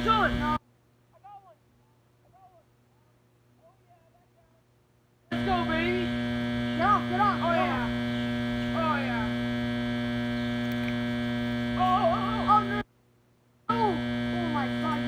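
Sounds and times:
electrical hum: 0:00.0 - 0:01.0, 0:04.7 - 0:13.0, 0:13.6 - 0:15.0
short pitched sounds: 0:05.3 - 0:12.9, 0:13.7 - 0:15.0.

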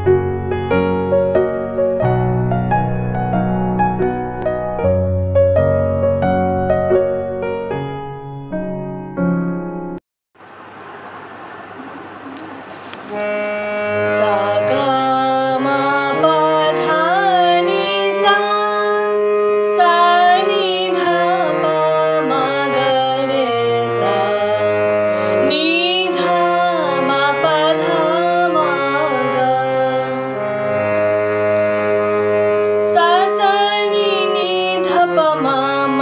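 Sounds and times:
sustained instrumental accompaniment: 0:00.0 - 0:10.0, 0:12.9 - 0:36.0
woman singing classical vocal: 0:13.9 - 0:30.6, 0:32.8 - 0:36.0.

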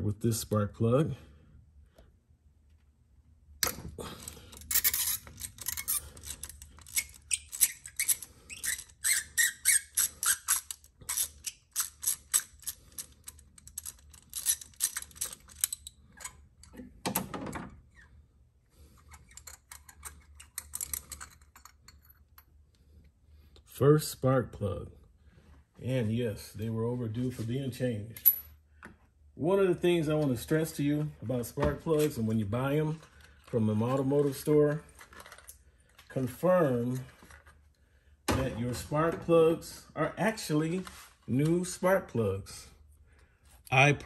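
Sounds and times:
hand ratchet clicking: 0:04.5 - 0:16.3.

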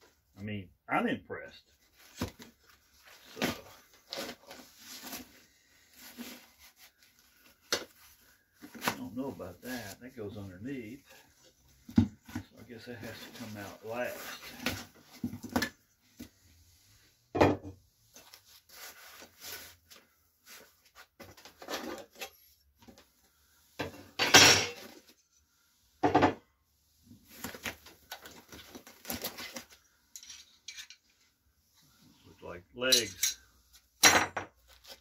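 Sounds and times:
metal parts clunking and clinking: 0:30.1 - 0:31.1, 0:32.8 - 0:33.4.

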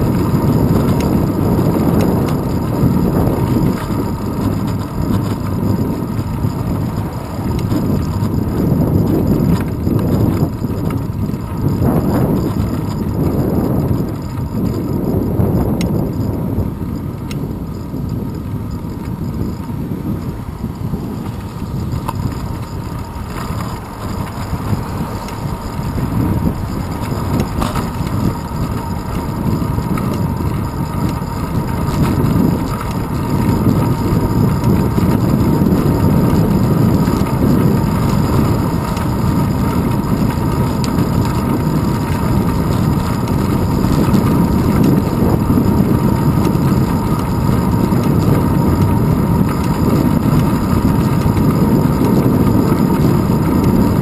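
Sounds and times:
bicycle road rumble: 0:00.0 - 0:54.0
wind buffeting: 0:00.0 - 0:54.0.

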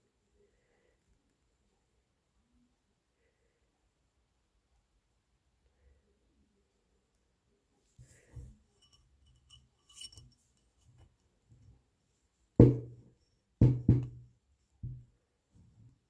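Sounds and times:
wire ring clinking on metal: 0:08.7 - 0:11.0.

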